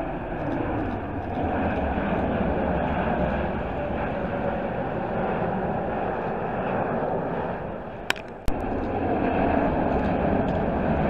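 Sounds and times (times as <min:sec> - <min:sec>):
jet engine rumble: 0:00.0 - 0:11.0
sharp clicks: 0:08.1 - 0:08.6.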